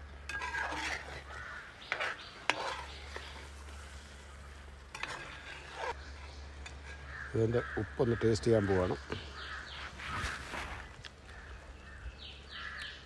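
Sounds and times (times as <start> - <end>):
spatula scraping metal pan: 0.2 - 7.2
crows cawing: 1.1 - 1.9, 6.9 - 13.0.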